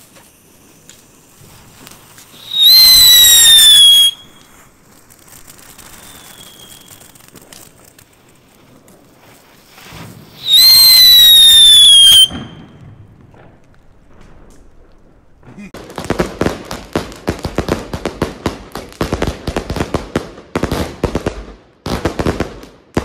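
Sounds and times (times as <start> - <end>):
spark fountain crackling hiss: 0.0 - 12.6
firework whistles: 0.0 - 13.2.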